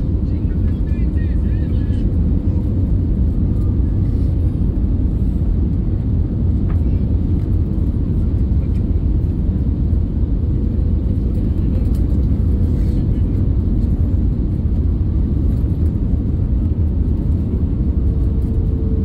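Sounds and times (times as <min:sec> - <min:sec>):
low rumble of engines and airflow: 0:00.0 - 0:19.0.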